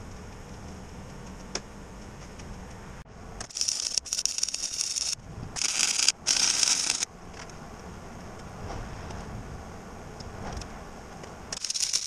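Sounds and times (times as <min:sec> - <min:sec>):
welding arc crackling: 0:03.4 - 0:07.5, 0:11.5 - 0:12.0.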